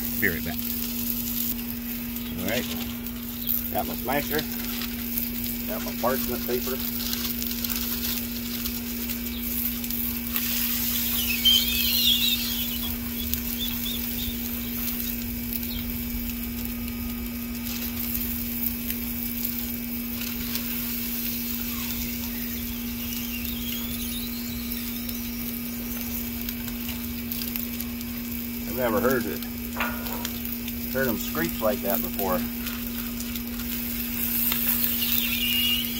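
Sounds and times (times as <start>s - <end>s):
sausage patties sizzling: 0.0s - 35.9s
wavering high screech: 21.4s - 26.2s, 34.6s - 35.9s.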